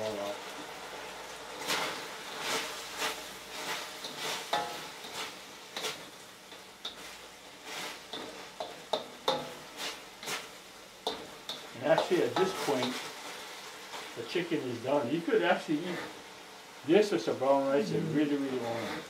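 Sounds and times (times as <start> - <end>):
frying sizzle: 0.0 - 19.0
spatula scraping metal wok: 1.6 - 13.4, 18.2 - 19.0.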